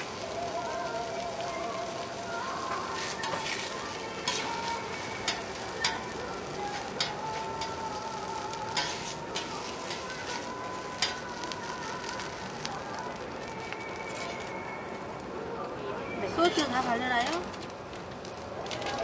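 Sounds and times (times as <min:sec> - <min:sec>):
food sizzling on griddle: 0:00.0 - 0:15.3, 0:16.2 - 0:17.6
metal tongs tapping griddle: 0:03.0 - 0:07.9, 0:08.7 - 0:12.6.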